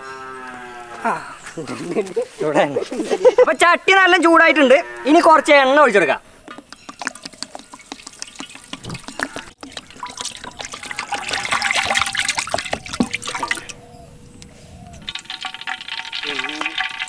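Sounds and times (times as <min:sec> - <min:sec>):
oil pouring into metal pan: 0:07.7 - 0:13.7, 0:15.1 - 0:17.0.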